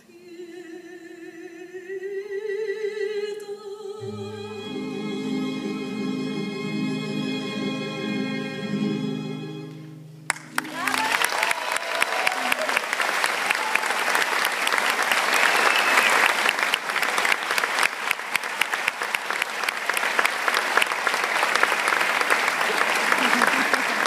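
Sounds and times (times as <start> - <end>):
audience applauding: 10.3 - 24.0.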